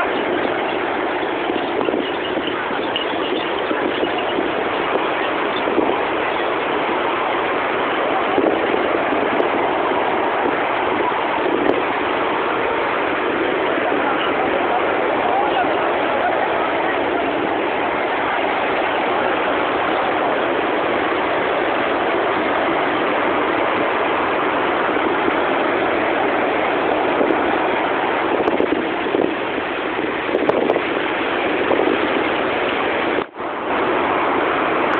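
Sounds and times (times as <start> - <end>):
sea surf breaking on beach: 0.0 - 34.9.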